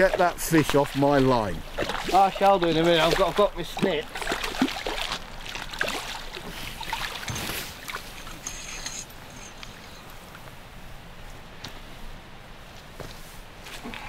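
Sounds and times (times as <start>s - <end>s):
water splashing and sloshing: 0.0s - 11.4s
fish thrashing at surface: 1.6s - 3.4s.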